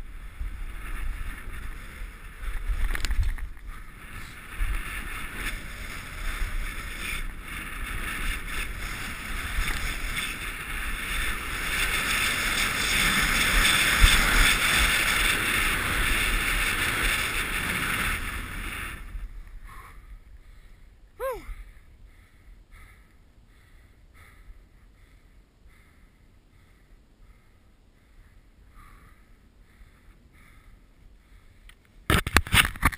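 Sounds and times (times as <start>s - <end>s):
wind on microphone: 0.0s - 20.3s
skis hissing over snow: 3.7s - 19.2s.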